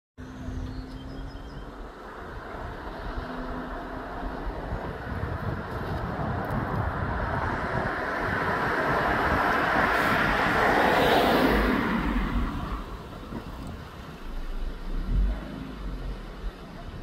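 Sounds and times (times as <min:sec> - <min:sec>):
vehicle passing by: 0:00.2 - 0:13.1.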